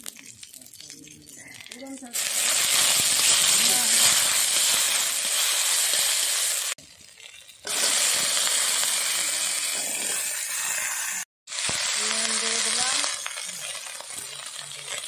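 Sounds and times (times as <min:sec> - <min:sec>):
vegetables sizzling in hot oil: 0:00.0 - 0:15.0
spatula scraping pan: 0:09.7 - 0:11.2.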